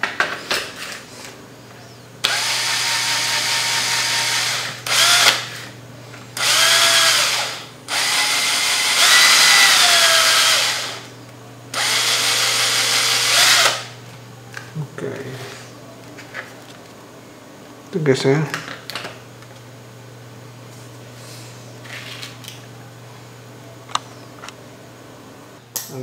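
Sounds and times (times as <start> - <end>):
cordless drill motor whining: 2.2 - 5.7, 6.4 - 11.1, 11.7 - 14.0.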